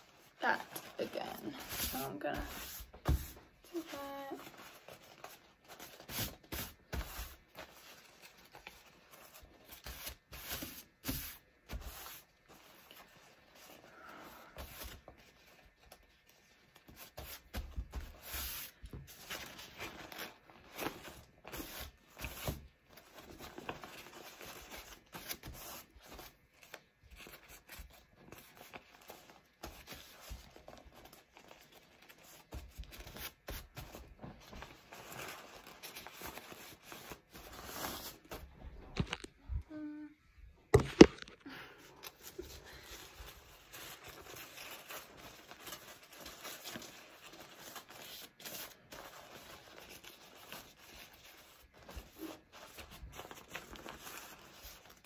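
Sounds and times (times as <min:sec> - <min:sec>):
wrap rustling and crinkling: 0:00.0 - 0:18.0.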